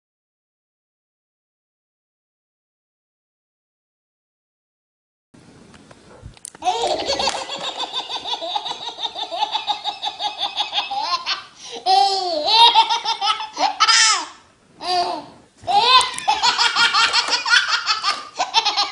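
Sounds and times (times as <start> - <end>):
baby laughing: 6.6 - 18.9
baby squealing laughs: 6.6 - 18.9.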